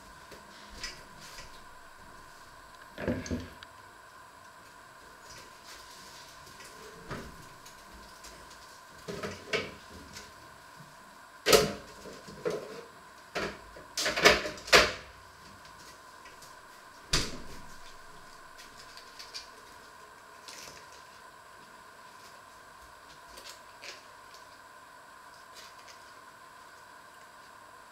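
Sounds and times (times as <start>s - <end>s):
faint high hum: 0.0s - 27.9s
knocks and clatter in kitchen: 11.5s - 15.1s.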